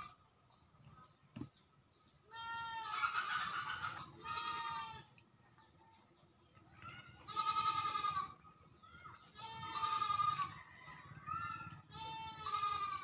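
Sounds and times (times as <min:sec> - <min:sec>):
quavering animal bleats: 0:02.3 - 0:05.1, 0:07.2 - 0:08.4, 0:09.4 - 0:10.5, 0:11.9 - 0:13.0.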